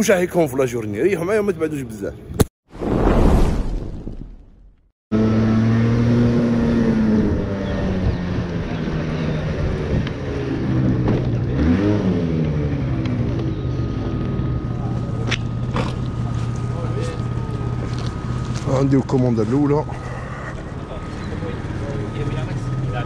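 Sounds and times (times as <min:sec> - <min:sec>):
scooter engine running: 0:05.2 - 0:23.0.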